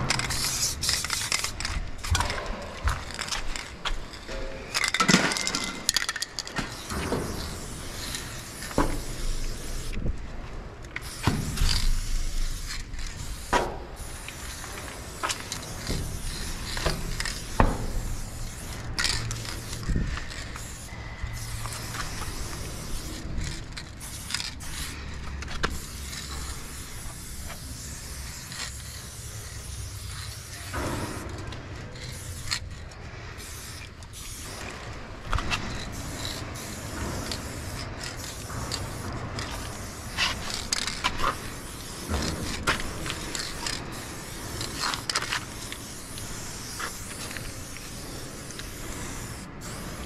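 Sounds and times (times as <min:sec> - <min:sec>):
spray paint can hissing: 0:00.0 - 0:50.0.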